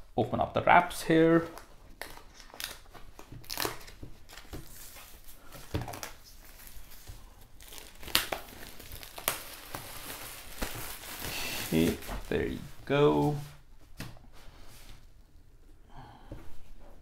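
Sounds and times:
plastic wrap tearing and crinkling: 1.6 - 12.6.

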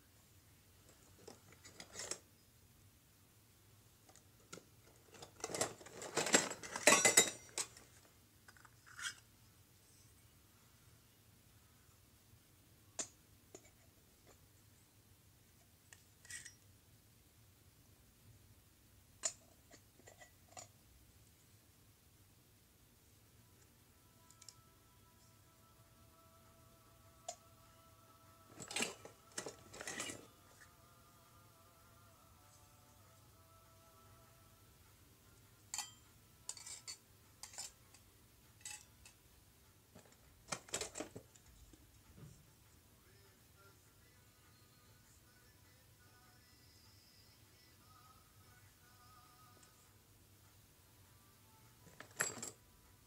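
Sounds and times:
small metal pots clinking: 5.2 - 7.9, 35.7 - 37.8
light metal clinks: 35.7 - 38.0.

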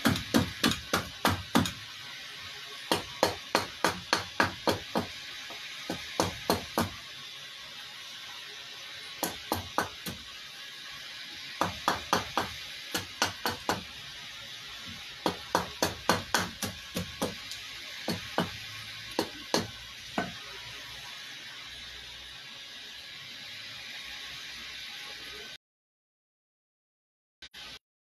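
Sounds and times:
hatchet chopping wood: 0.0 - 1.8, 2.9 - 5.1, 5.9 - 7.0, 9.2 - 10.2, 11.6 - 13.9, 15.2 - 17.4, 18.1 - 18.6, 19.2 - 20.4.

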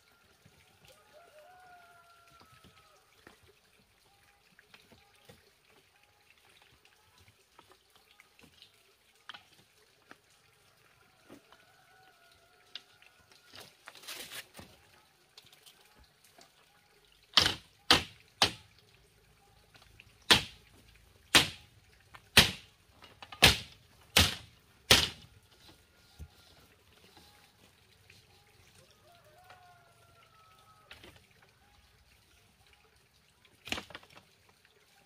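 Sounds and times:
scraping and rustling: 13.7 - 14.7
tool knocking on bamboo: 21.3 - 21.6, 22.3 - 22.6, 23.3 - 25.2.

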